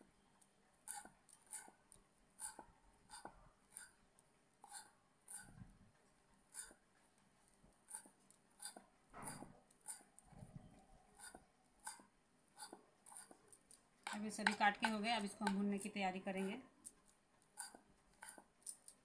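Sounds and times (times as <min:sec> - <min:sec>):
knife chopping on wooden board: 0:07.9 - 0:10.1, 0:14.0 - 0:15.8.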